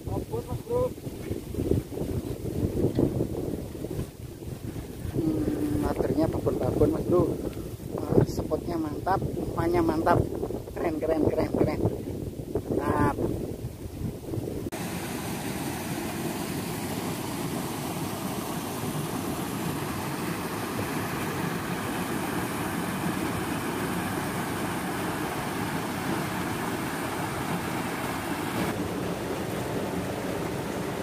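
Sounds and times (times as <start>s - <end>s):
wind buffeting microphone: 0.0s - 14.8s
stream rushing over rocks: 14.7s - 31.0s.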